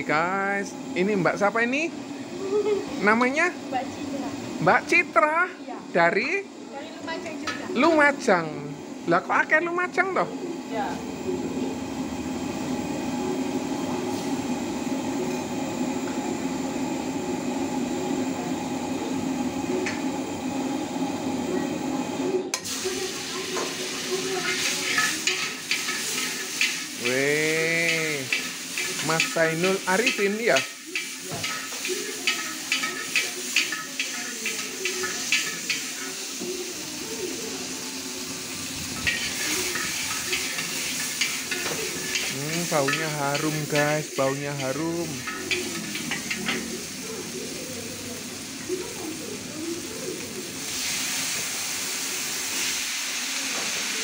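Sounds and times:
food sizzling in hot oil: 0:00.0 - 0:54.0
gas burners roaring: 0:00.0 - 0:54.0
metal utensils scraping a wok: 0:22.6 - 0:48.6.

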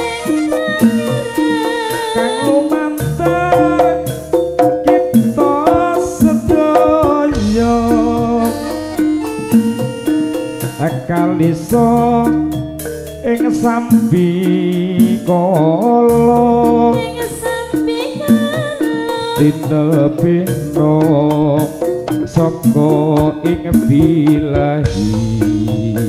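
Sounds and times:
person singing: 0:00.0 - 0:04.2, 0:04.8 - 0:12.5, 0:13.2 - 0:26.0
metallophones ringing: 0:00.0 - 0:23.2
drum strikes: 0:00.0 - 0:26.0.

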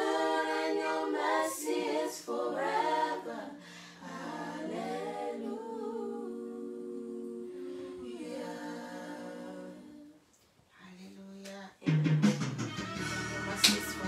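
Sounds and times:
voices singing unaccompanied: 0:00.0 - 0:10.3.

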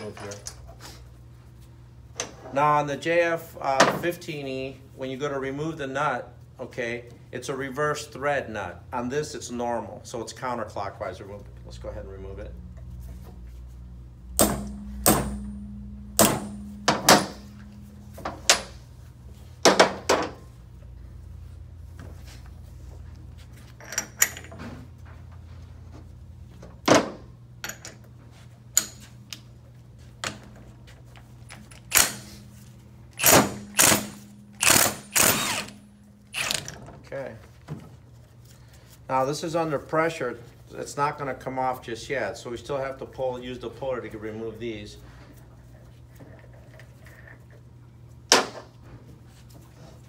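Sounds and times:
steady low hum: 0:00.0 - 0:50.0
impact wrench bursts: 0:31.7 - 0:32.4, 0:33.1 - 0:36.8.

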